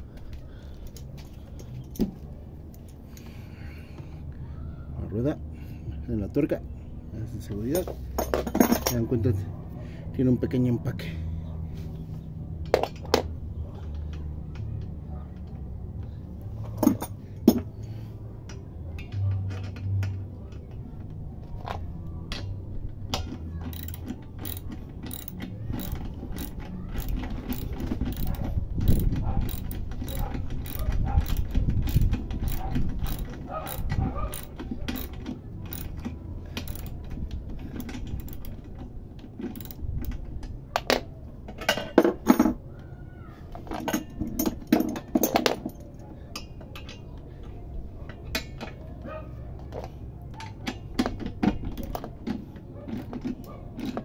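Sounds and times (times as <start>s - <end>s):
metal clanks: 7.7s - 9.2s
ratchet wrench clicking: 23.2s - 38.7s, 39.4s - 40.2s.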